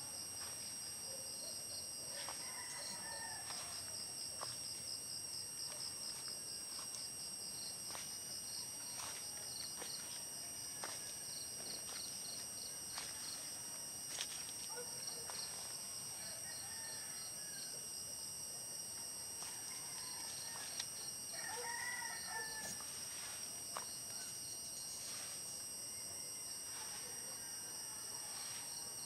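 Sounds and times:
insect chirping: 0.0s - 29.0s
distant rooster crowing: 2.1s - 4.5s, 16.1s - 17.9s, 19.4s - 23.4s, 26.0s - 28.8s.

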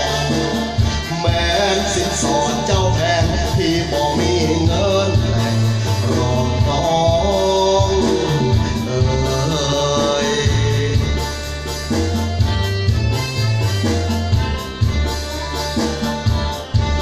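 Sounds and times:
man singing into a microphone: 0.0s - 11.7s
backing music with heavy bass: 0.0s - 17.0s.

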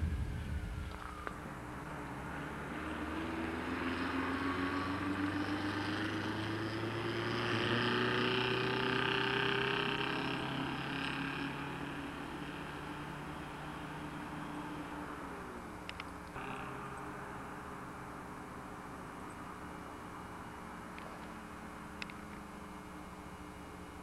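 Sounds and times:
distant vehicle engine passing: 0.0s - 22.9s.

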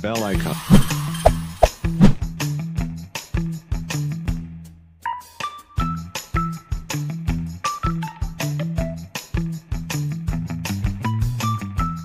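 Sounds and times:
background music with steady beat: 0.0s - 12.0s.

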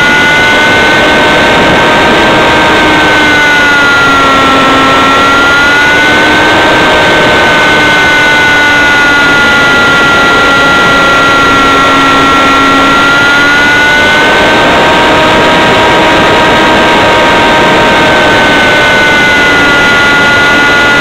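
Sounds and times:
model airplane engine buzzing: 0.0s - 21.0s.

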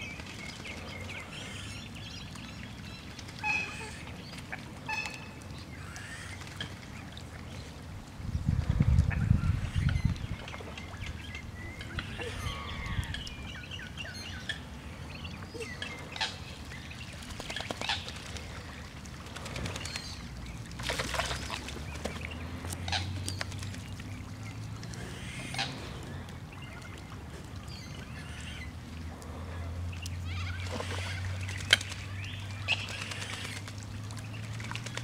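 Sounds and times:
ducks calling: 9.2s - 13.5s, 22.4s - 23.2s.

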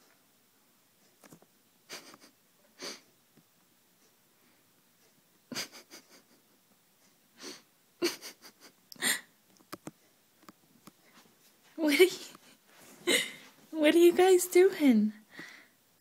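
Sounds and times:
person stifling laughter: 1.9s - 3.0s, 5.5s - 6.5s, 7.4s - 9.3s.

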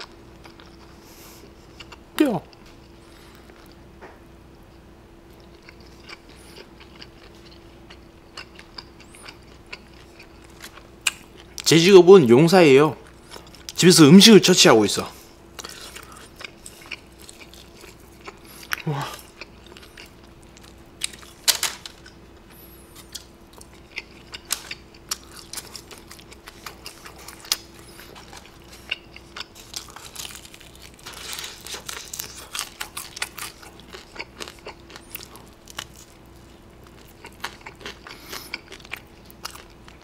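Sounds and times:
faint hum: 0.0s - 40.0s
crunching fried chicken: 5.3s - 11.8s, 15.5s - 40.0s.

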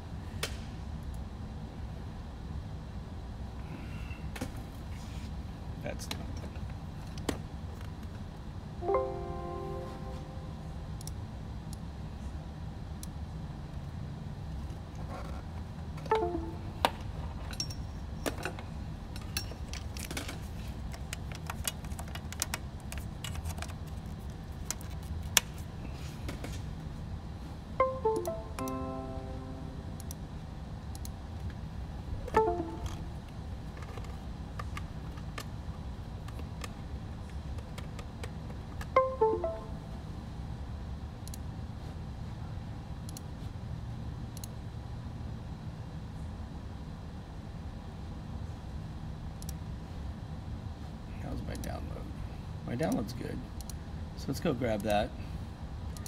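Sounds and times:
steady low hum: 0.0s - 56.0s
computer chime notes: 8.8s - 10.6s, 16.1s - 16.8s, 27.8s - 30.0s, 32.4s - 33.2s, 39.0s - 40.0s.

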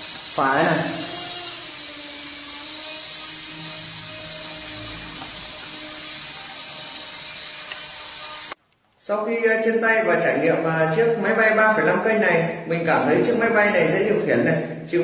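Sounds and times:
toy helicopter buzzing whine: 0.0s - 8.6s.

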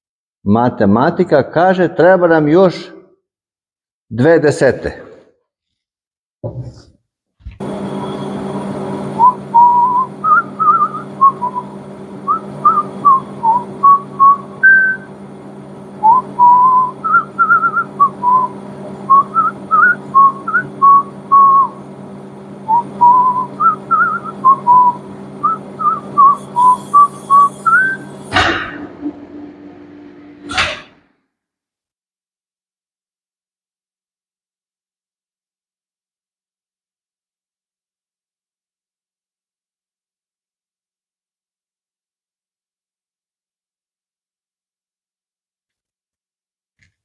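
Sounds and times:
machine humming: 7.6s - 31.0s
man whistling a tune: 9.2s - 15.1s, 16.0s - 21.8s, 22.7s - 28.1s.

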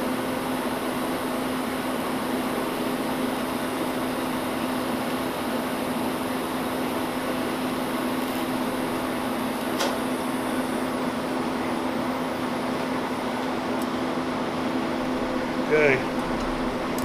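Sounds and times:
fan hum and hiss: 0.0s - 17.0s
sharp click: 9.6s - 10.0s.

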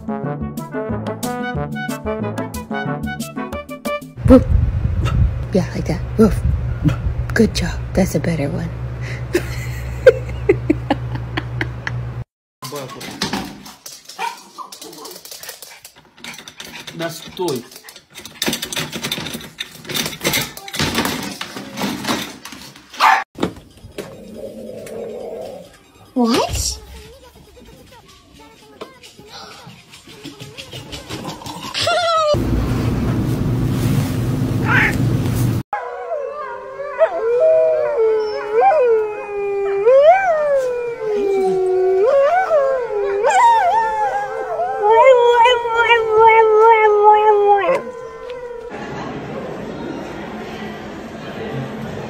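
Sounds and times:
rattling wire door: 16.0s - 23.0s
dog howling: 35.8s - 48.7s
wolf howling: 35.8s - 48.7s.

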